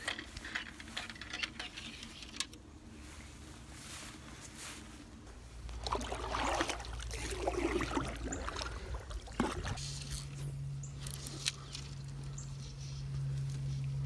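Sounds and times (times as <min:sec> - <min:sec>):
steady low hum: 0:00.0 - 0:14.0
water dripping off paddle: 0:05.7 - 0:09.8.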